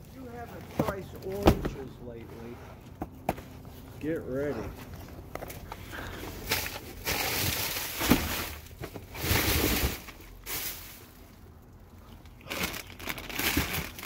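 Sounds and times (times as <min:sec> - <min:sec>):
plastic bags rustling: 0:04.8 - 0:14.0.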